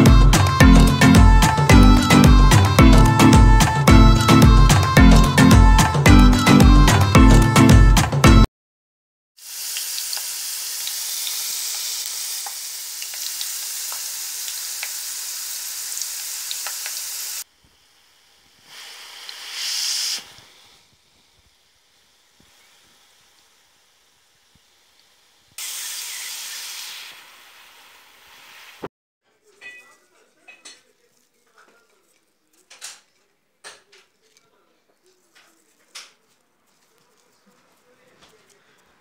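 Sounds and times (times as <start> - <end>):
potatoes sizzling in hot oil: 9.4 - 28.8.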